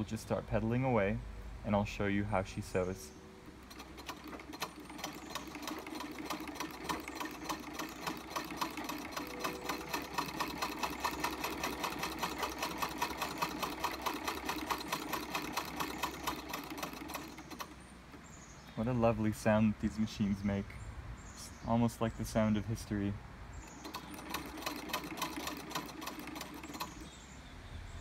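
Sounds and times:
treadle sewing machine clatter: 0:03.6 - 0:17.8, 0:23.7 - 0:27.1.

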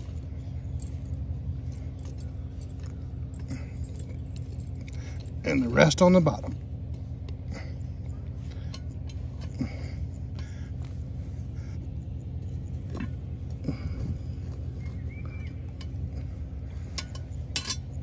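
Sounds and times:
low engine hum: 0:00.0 - 0:18.0
charcoal briquettes clinking: 0:15.7 - 0:18.0.

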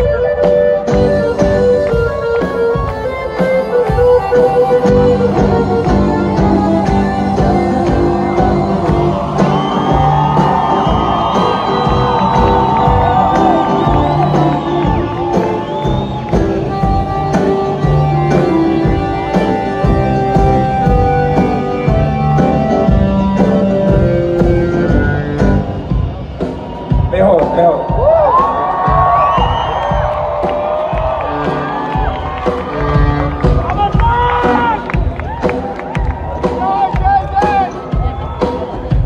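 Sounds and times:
live band with accordion solo: 0:00.0 - 0:26.9, 0:30.0 - 0:35.2
crowd whooping and shouting: 0:07.2 - 0:22.8, 0:23.8 - 0:39.0.

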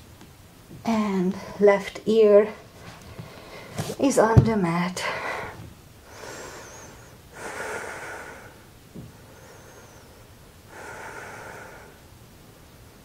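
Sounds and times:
person breathing slowly: 0:05.0 - 0:12.1.

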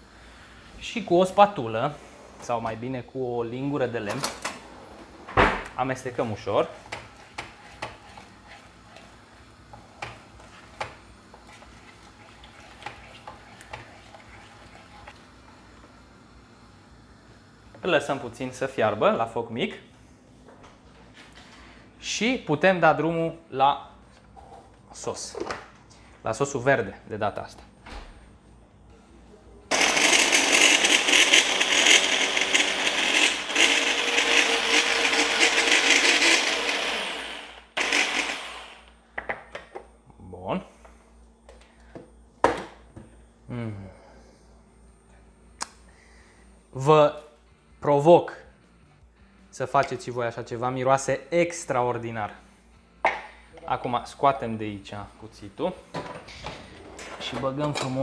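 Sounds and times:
electric blender running: 0:29.7 - 0:39.0.

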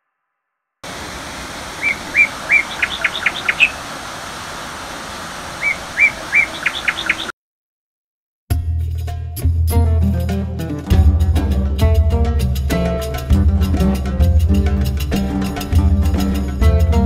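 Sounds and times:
waterfall rushing: 0:00.8 - 0:07.3
songbird singing: 0:00.9 - 0:07.3.

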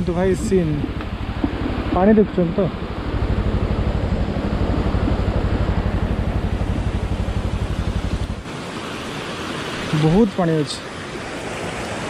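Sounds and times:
motorcycle engine low throb: 0:00.0 - 0:08.4
river water rushing over concrete: 0:06.5 - 0:12.0.

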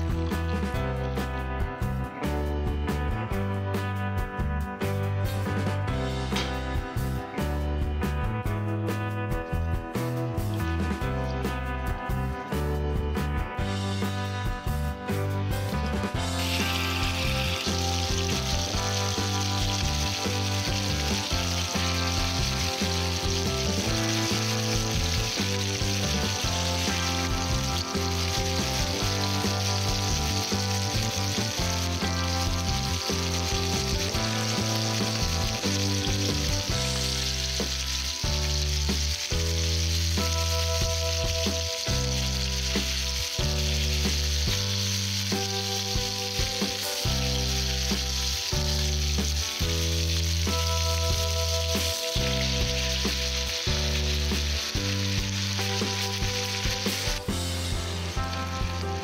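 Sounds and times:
background music with low notes: 0:00.0 - 0:59.0
chicken sizzling in a pan: 0:15.5 - 0:59.0.

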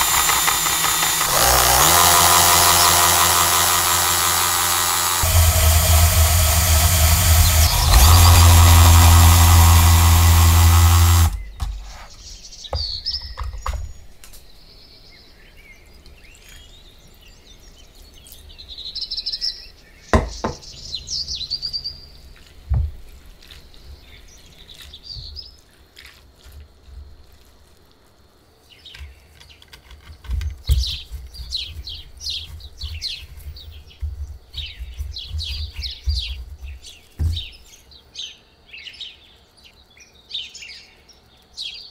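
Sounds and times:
spiralizer whirring: 0:00.0 - 0:11.4.

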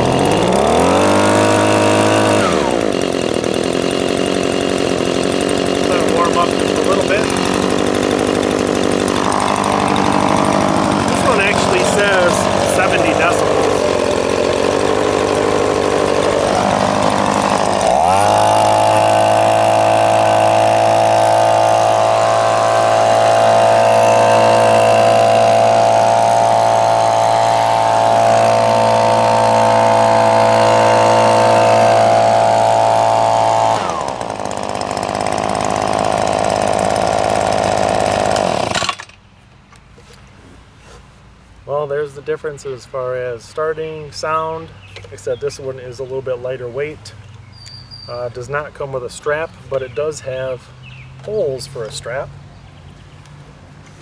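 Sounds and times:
leaf blower engine revving: 0:00.0 - 0:39.2.

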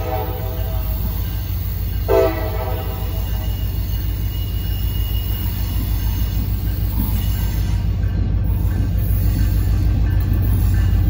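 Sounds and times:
diesel locomotive rumbling: 0:00.0 - 0:11.0
faint high squeal: 0:02.7 - 0:07.9.

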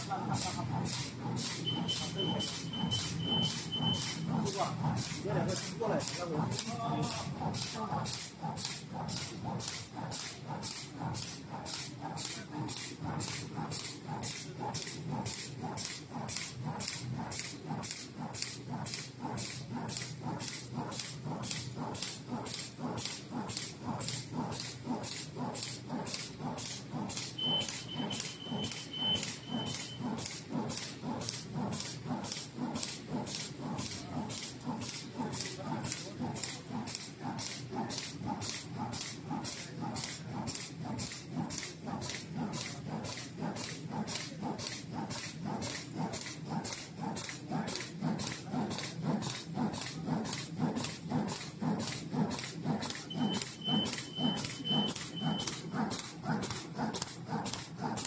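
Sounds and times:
machine air hiss with knock: 0:00.0 - 0:58.0
short high beeps: 0:01.6 - 0:04.2, 0:27.4 - 0:30.0
thin whistle: 0:01.6 - 0:04.2, 0:27.4 - 0:30.1, 0:53.1 - 0:55.6.

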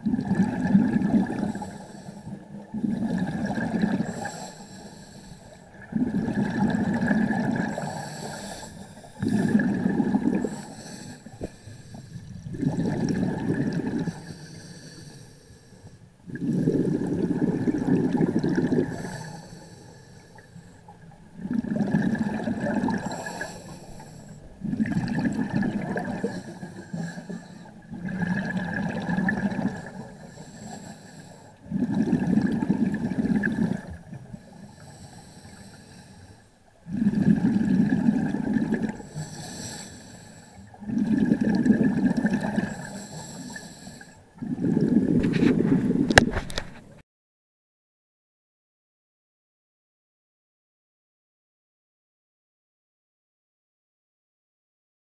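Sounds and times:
exhaled bubbles rushing: 0:00.0 - 0:01.8, 0:02.6 - 0:04.3, 0:05.7 - 0:08.0, 0:09.2 - 0:10.7, 0:12.1 - 0:14.2, 0:16.3 - 0:19.2, 0:21.3 - 0:23.6, 0:24.5 - 0:27.2, 0:27.8 - 0:30.0, 0:31.6 - 0:34.3, 0:36.8 - 0:39.0, 0:40.8 - 0:42.9, 0:44.4 - 0:46.8
diver inhaling through regulator: 0:00.6 - 0:20.9, 0:21.7 - 0:46.8.

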